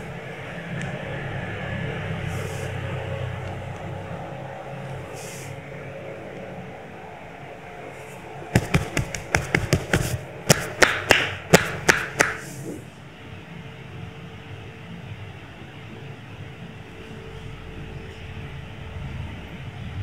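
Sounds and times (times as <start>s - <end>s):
steady low hum: 0.0s - 20.0s
hands slapping body: 8.6s - 12.6s.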